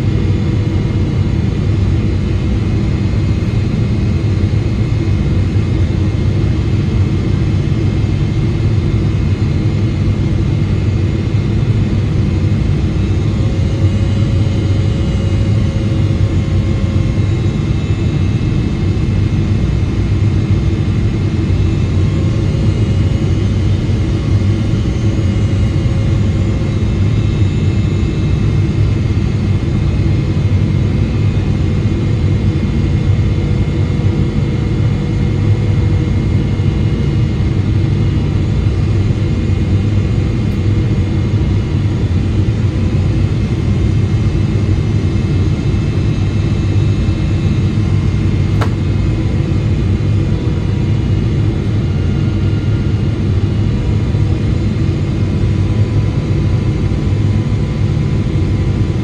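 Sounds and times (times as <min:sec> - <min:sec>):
airplane cabin rumble: 0:37.3 - 0:56.0
small click: 0:48.5 - 0:48.8.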